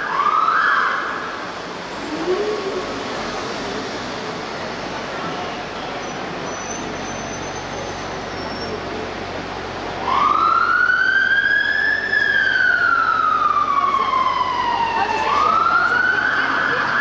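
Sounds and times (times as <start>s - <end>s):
fire engine siren wailing: 0.0s - 3.4s, 10.0s - 17.0s
street traffic: 0.0s - 17.0s.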